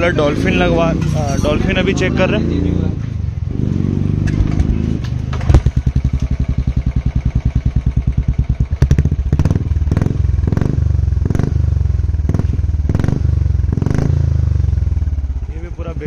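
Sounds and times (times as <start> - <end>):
exhaust cracks: 0.0 - 16.0
motorcycle engine revving: 0.0 - 16.0.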